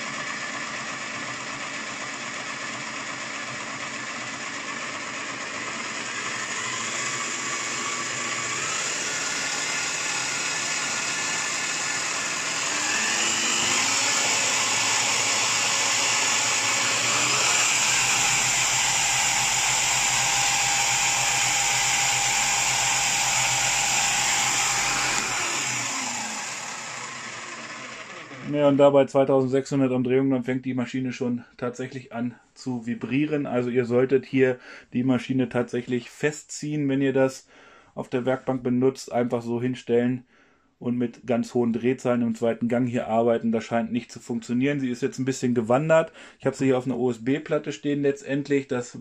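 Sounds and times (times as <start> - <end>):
drill press motor whine: 0.0 - 28.6.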